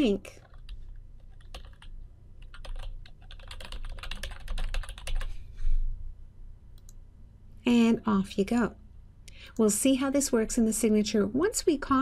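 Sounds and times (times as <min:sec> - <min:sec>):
keyboard typing: 0:00.3 - 0:05.3.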